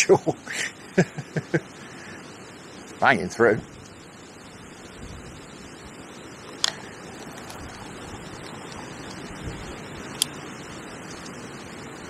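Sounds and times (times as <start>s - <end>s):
wind buffeting microphone: 6.7s - 10.2s.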